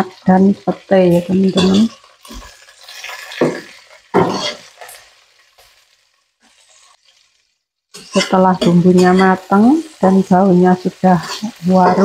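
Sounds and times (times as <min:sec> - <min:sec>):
food sizzling in hot oil: 0:00.0 - 0:12.0
spatula scraping a wok: 0:01.4 - 0:10.0, 0:11.1 - 0:12.0.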